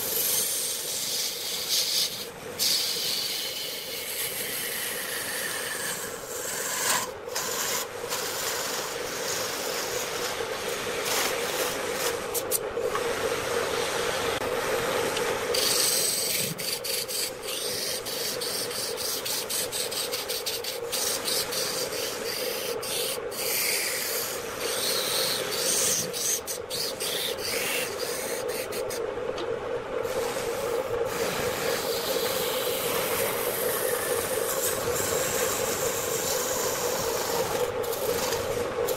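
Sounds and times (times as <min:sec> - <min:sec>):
turning tool scraping wood: 0:00.4 - 0:12.6, 0:31.2 - 0:38.9
wood lathe humming: 0:02.8 - 0:13.1, 0:30.1 - 0:38.9.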